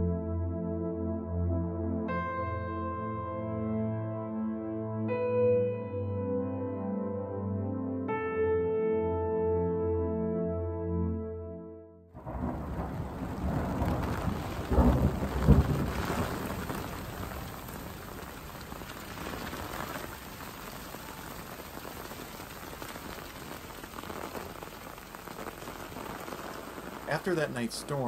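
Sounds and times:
rain falling: 0:12.2 - 0:28.0
thunder rumble: 0:12.2 - 0:28.0.

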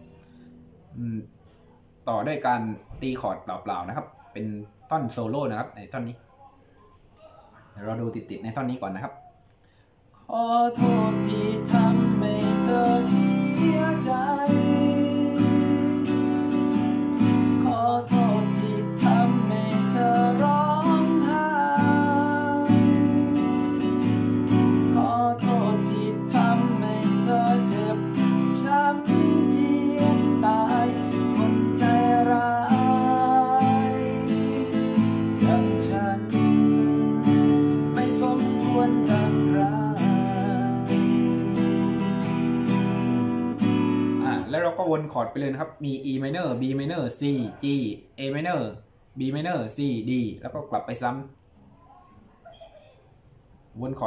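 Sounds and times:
man singing: 0:10.3 - 0:42.1
acoustic guitar strumming: 0:10.4 - 0:44.8.

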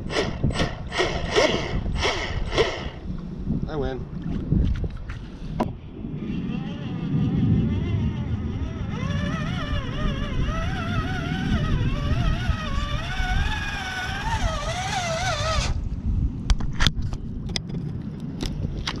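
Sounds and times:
electric motor whine: 0:00.0 - 0:03.0, 0:06.2 - 0:15.8.

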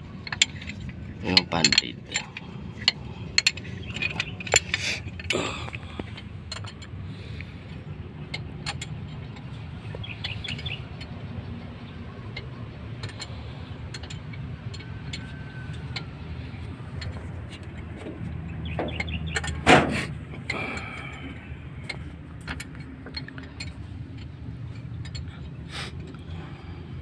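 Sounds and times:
hand tools clinking on metal: 0:00.2 - 0:11.2.

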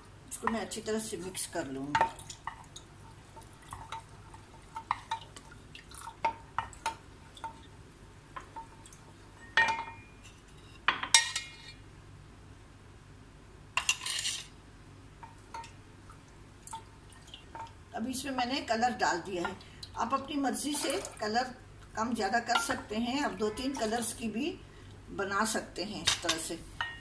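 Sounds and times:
wooden spoon stirring in pot: 0:00.4 - 0:09.4, 0:18.9 - 0:24.6
spoon clanking on metal pot: 0:22.4 - 0:24.1.

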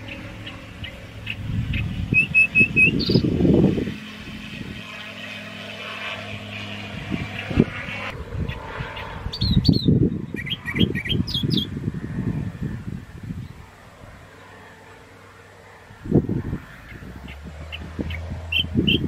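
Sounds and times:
small birds chirping: 0:00.0 - 0:03.5, 0:06.4 - 0:11.8, 0:16.8 - 0:19.0
wind buffeting microphone: 0:00.0 - 0:05.2, 0:06.1 - 0:14.4, 0:15.8 - 0:19.0
distant light aircraft engine: 0:00.0 - 0:19.0.

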